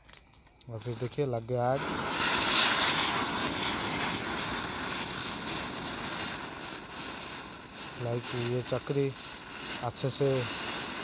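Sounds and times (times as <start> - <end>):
ground spinner firecrackers hissing: 0.6 - 11.0.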